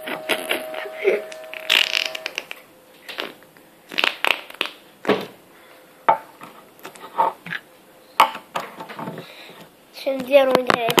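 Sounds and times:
slime squishing and crackling: 1.6 - 4.8.

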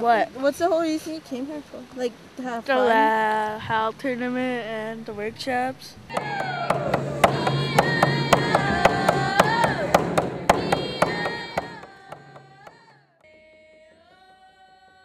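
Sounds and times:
frame drum beats: 6.1 - 13.0
voices singing long notes: 6.1 - 15.0.

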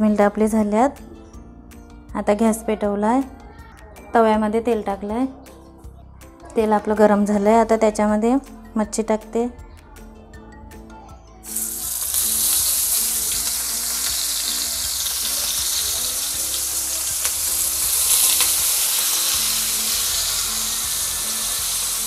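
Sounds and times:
fish sizzling in hot oil: 11.5 - 22.0.

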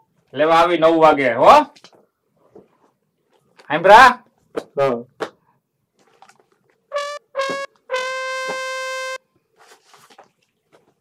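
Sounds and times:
comic trumpet failure sting: 6.9 - 9.2.

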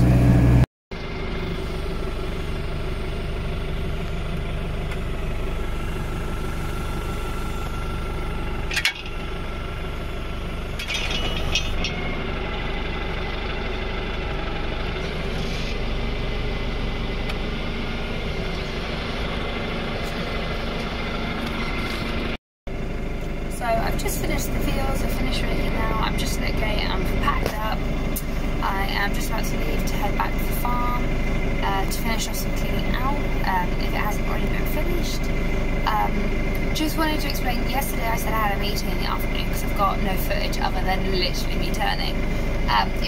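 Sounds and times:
tractor engine running: 0.0 - 43.0
short rattle: 8.6 - 9.5, 10.5 - 12.2.

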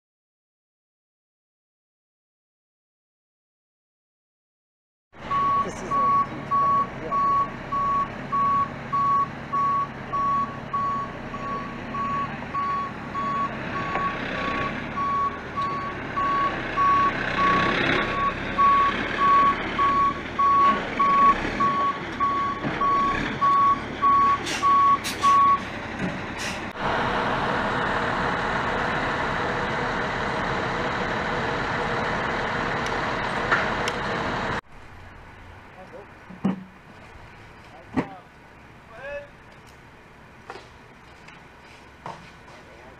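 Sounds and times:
truck backup alarm beeping: 5.2 - 25.7
diesel truck engine running: 5.2 - 42.9.

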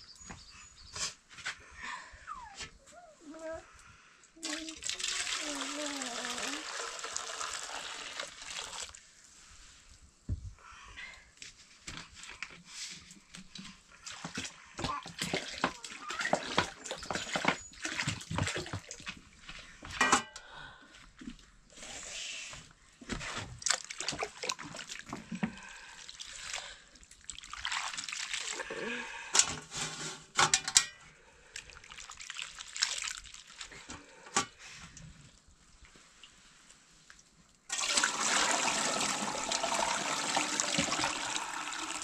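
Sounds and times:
water splashing in container: 4.4 - 9.0, 14.0 - 19.2, 23.6 - 28.8, 31.6 - 33.7, 37.7 - 42.0.

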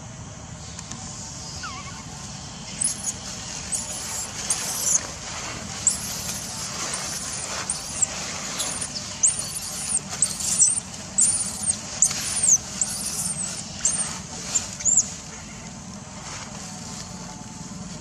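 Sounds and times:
infant monkey squealing: 1.5 - 15.6.

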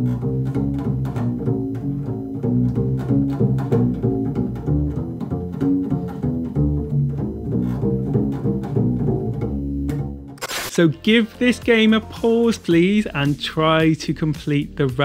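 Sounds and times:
double bass playing low notes: 0.0 - 10.4.

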